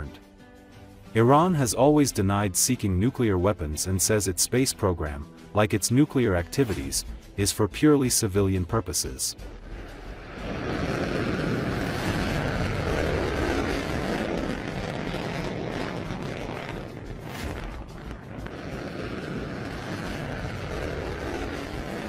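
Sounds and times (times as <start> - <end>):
rocket motor roaring at liftoff: 9.6 - 22.0.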